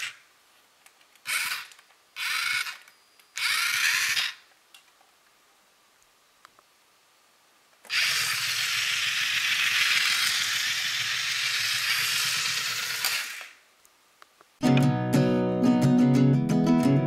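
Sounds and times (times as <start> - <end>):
small electric motors whirring: 0.0 - 0.2, 1.2 - 4.4, 7.9 - 13.6.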